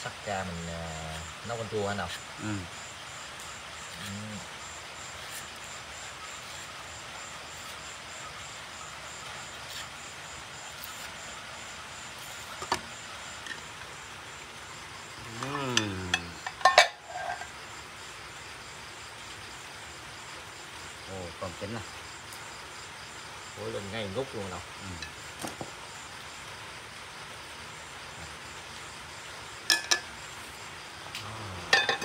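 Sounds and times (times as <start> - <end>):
background hiss: 0.0 - 32.0
insects chirping in pulses: 0.0 - 32.0.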